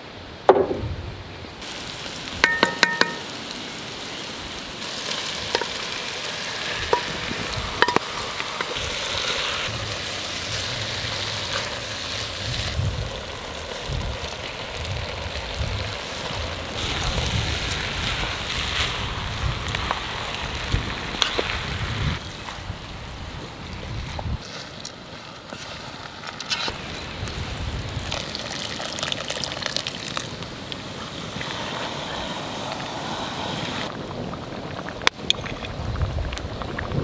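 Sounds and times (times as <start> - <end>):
meat sizzling in a pot: 1.5 - 22.2.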